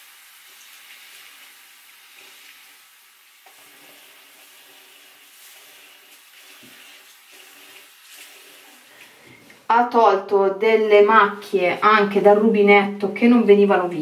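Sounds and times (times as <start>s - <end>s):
tap water running into basin: 0.0s - 9.4s
sponge wiping basin: 3.5s - 9.4s.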